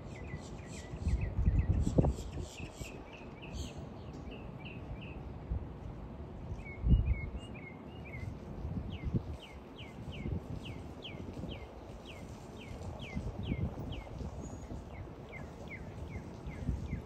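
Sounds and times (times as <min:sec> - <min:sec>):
birds chirping: 0:09.0 - 0:17.0.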